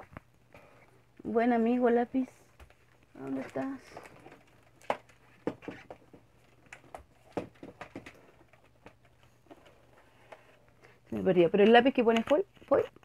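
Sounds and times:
rummaging small items on desk: 2.6s - 10.8s.

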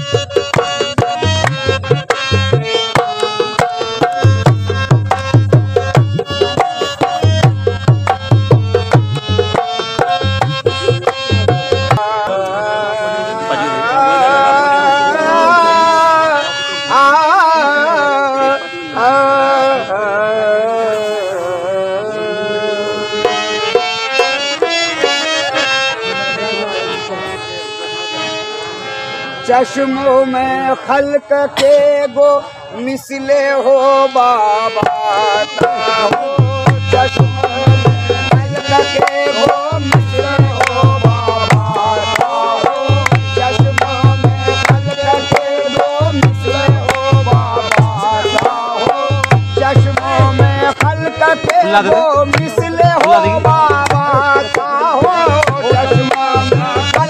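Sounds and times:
tabla drumming: 0.0s - 12.5s, 23.1s - 25.4s, 34.0s - 57.0s
harmonium tones: 0.0s - 57.0s.

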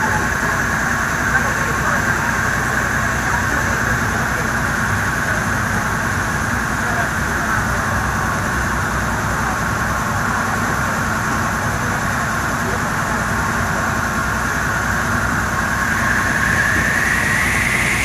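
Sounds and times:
boat engine drone: 0.0s - 18.0s
wind: 0.0s - 18.0s.

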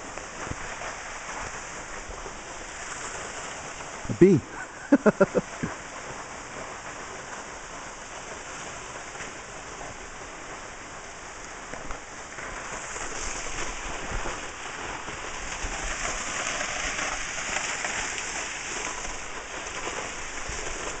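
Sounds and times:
small waterfall splashing: 0.0s - 21.0s.

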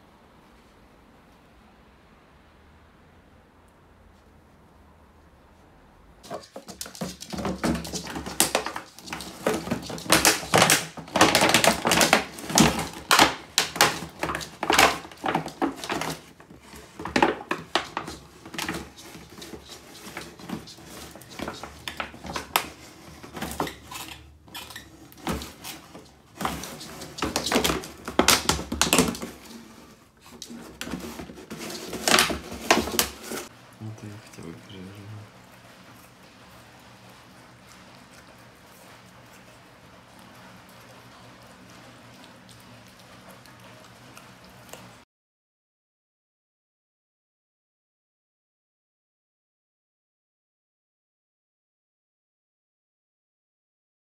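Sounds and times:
plastic bottle crackling on floor: 6.2s - 33.5s.

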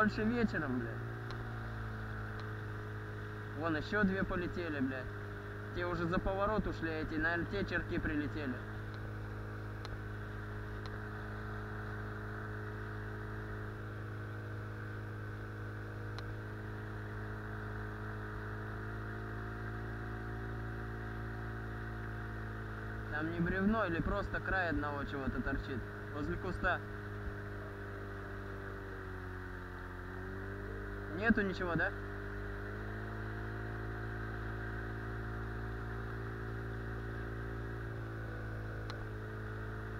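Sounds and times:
outboard motor humming: 0.0s - 39.9s
light ticks: 1.2s - 1.5s, 2.3s - 2.6s, 8.9s - 9.1s, 9.8s - 10.0s, 10.8s - 11.0s, 16.1s - 16.4s, 38.8s - 39.1s.

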